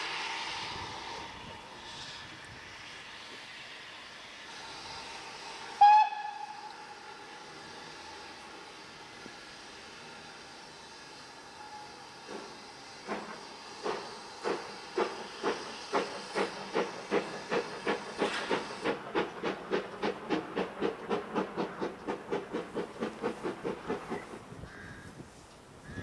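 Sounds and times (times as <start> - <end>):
steam hissing: 0.0 - 24.8
steam locomotive chuffing: 0.0 - 24.8.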